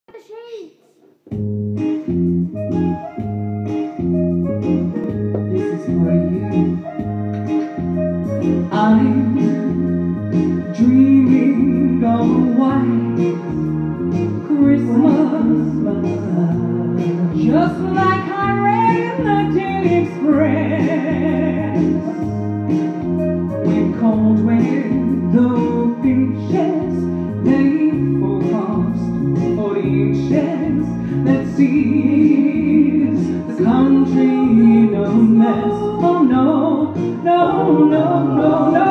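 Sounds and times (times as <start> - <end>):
backing track with guitar chords: 1.2 - 38.9
woman singing into a microphone: 8.6 - 9.9, 10.6 - 13.2, 14.4 - 22.2, 23.6 - 38.9.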